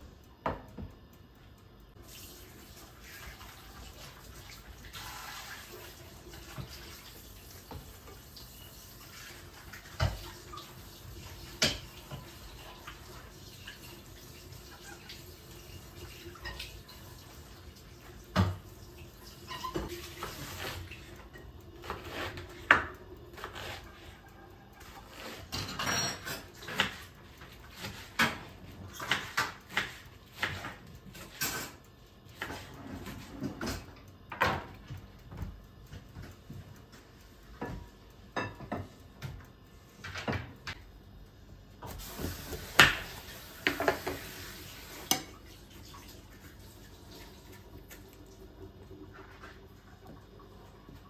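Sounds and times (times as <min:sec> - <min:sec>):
dishes and pans clanking: 0:25.2 - 0:27.0, 0:37.6 - 0:38.9
steady hiss: 0:40.8 - 0:45.2.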